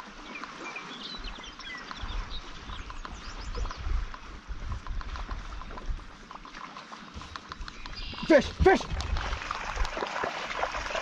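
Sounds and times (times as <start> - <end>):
birds chirping: 0.0 - 4.5, 7.2 - 10.0
small waves lapping: 0.0 - 11.0
wind on microphone: 1.2 - 6.3, 7.6 - 10.0.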